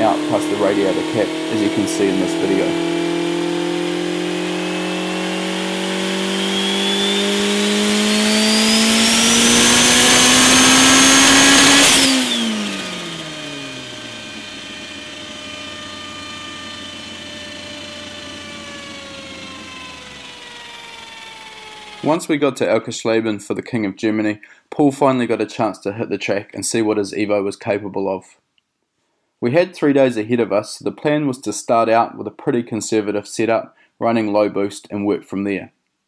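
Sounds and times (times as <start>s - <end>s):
engine revving on a dyno: 0.0s - 22.3s
high turbo whine: 0.0s - 22.5s.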